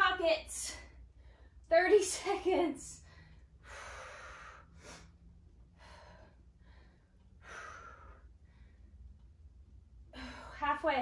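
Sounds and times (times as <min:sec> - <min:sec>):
woman breathing hard: 0:03.0 - 0:09.2, 0:10.1 - 0:10.6.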